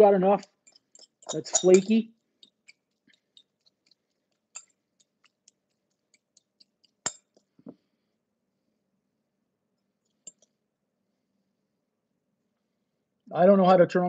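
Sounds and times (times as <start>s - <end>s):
fork tapping glass bowl: 0.7s - 3.5s.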